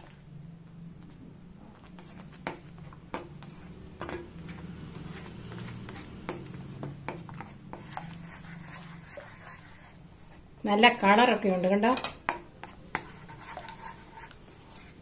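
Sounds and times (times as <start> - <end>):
spoon scraping pan: 1.7 - 10.4, 11.2 - 15.0.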